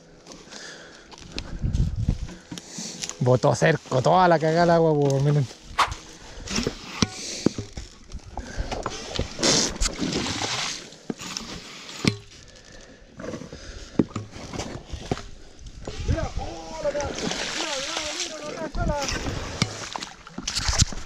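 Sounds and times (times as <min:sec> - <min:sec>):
water and mud sloshing: 0:05.3 - 0:21.0
sharp knocks: 0:05.8 - 0:06.0.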